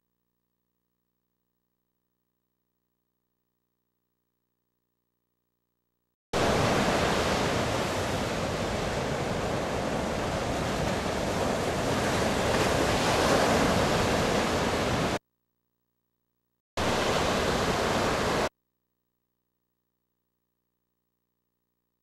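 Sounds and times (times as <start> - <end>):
ocean surf: 6.4 - 15.2, 16.8 - 18.5
wind on microphone: 6.4 - 15.2.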